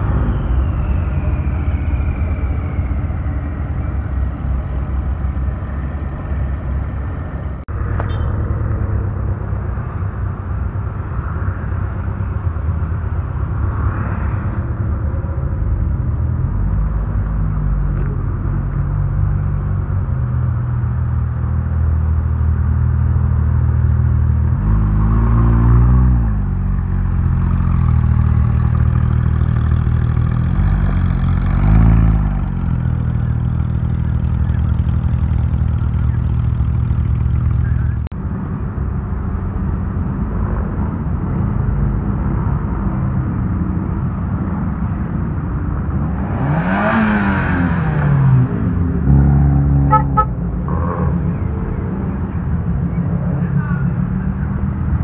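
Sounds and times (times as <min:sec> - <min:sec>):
car engine droning low: 0:00.0 - 0:55.0
engine revs: 0:24.5 - 0:38.1, 0:46.0 - 0:52.4.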